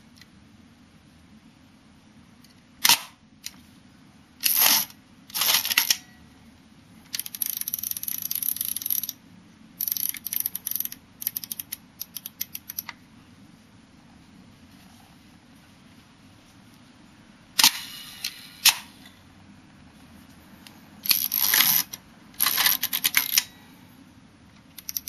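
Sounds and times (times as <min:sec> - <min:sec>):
camera knob ratcheting: 0:07.2 - 0:09.2, 0:09.8 - 0:12.9, 0:24.8 - 0:25.0.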